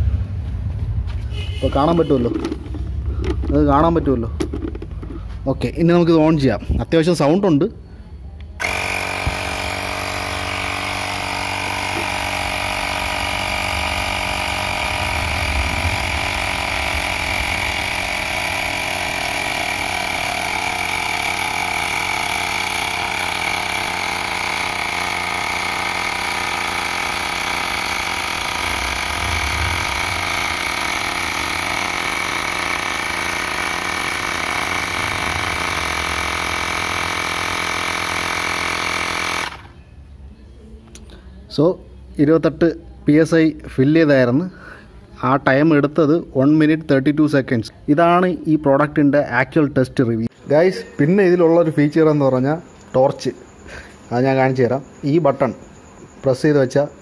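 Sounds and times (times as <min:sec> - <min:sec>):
air compressor buzzing with whine: 0:01.1 - 0:07.0, 0:08.6 - 0:39.9.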